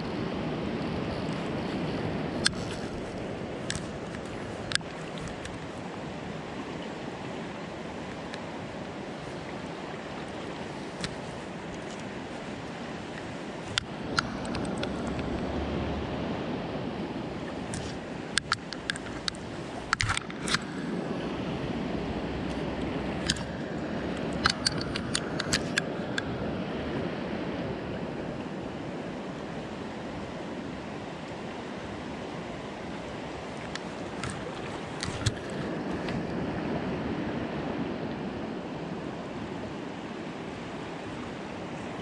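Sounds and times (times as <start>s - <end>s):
stream flowing: 0.0s - 42.0s.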